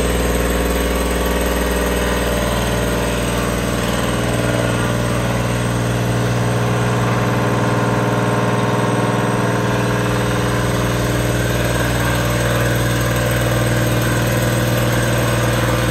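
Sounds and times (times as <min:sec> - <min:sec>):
milling machine humming: 0:00.0 - 0:15.9.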